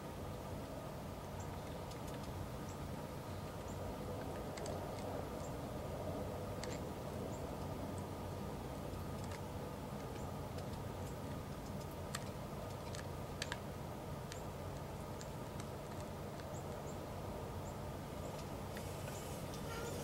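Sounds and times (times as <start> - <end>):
steady low hum: 0.0 - 20.0
sharp clicks and ticks: 1.5 - 5.5, 6.6 - 8.1, 8.9 - 17.0.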